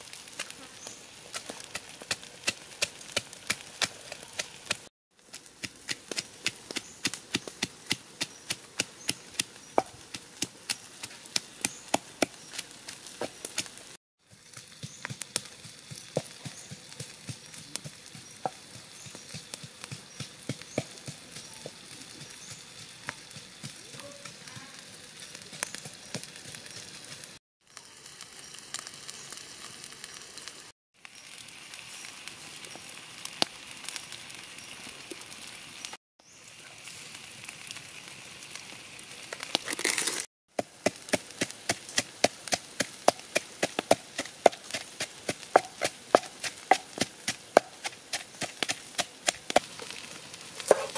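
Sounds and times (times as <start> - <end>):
fish sizzling on hot stone: 0.0 - 50.9
wood fire crackling: 0.0 - 50.9
pestle pounding in wooden mortar: 1.3 - 12.4, 14.4 - 21.4, 40.5 - 49.7, 50.6 - 50.9.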